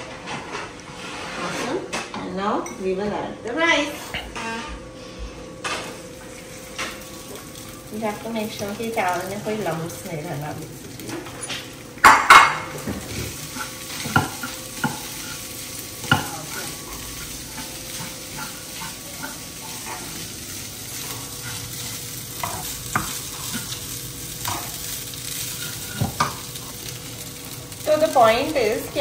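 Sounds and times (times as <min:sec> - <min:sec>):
wooden spatula scraping pan: 0:00.3 - 0:02.0, 0:12.9 - 0:20.3, 0:21.0 - 0:23.8
light sizzle: 0:05.4 - 0:29.0
spatula clatter: 0:11.0 - 0:26.9.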